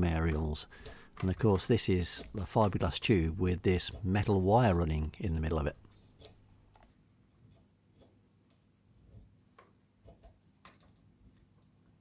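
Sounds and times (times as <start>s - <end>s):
faint metallic clicks: 0.3s - 3.2s.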